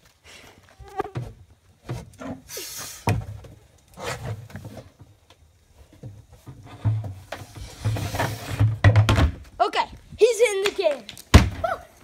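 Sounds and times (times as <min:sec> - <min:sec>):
snake hissing: 0:02.5 - 0:03.1
knocks on plastic can: 0:08.8 - 0:09.4.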